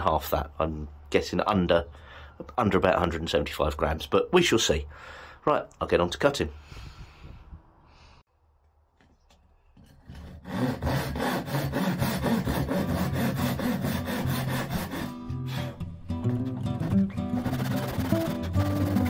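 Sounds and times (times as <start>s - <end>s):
hand saw cutting bamboo: 9.9s - 15.8s, 17.4s - 19.0s.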